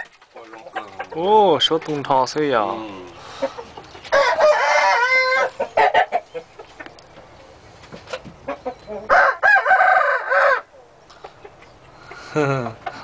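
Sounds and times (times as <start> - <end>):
rooster crowing: 4.1 - 6.1, 9.1 - 10.8.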